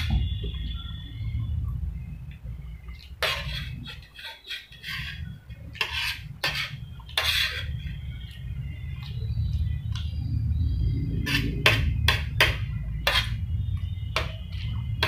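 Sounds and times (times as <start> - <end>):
steady low hum: 0.0 - 15.0
spoon scraping metal plate: 3.2 - 7.9, 11.1 - 13.5.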